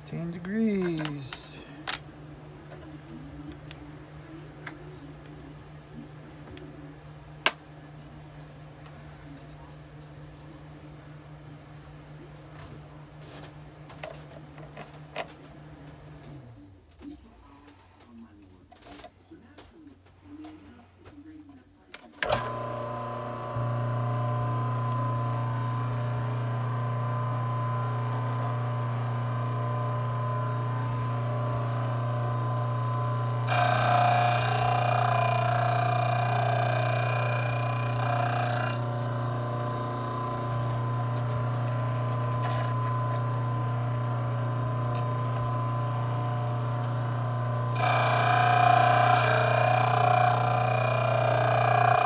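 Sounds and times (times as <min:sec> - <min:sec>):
electric motor hum: 0:22.4 - 0:52.0
drill bit grinding on wheel: 0:33.5 - 0:38.9, 0:47.7 - 0:52.0.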